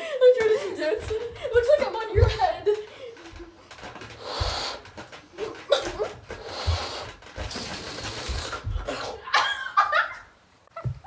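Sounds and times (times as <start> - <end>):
person blowing into balloon: 4.1 - 5.1, 6.3 - 9.2
laughter: 9.2 - 11.0.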